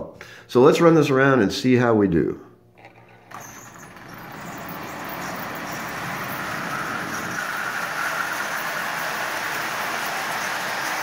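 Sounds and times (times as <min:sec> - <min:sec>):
toy train rolling on metal track: 0:03.0 - 0:11.0.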